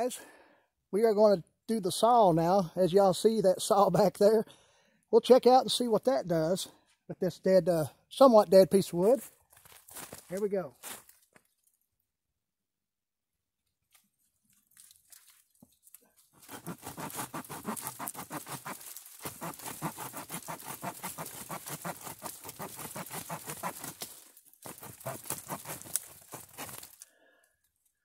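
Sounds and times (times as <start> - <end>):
saw cutting a branch: 16.3 - 27.0.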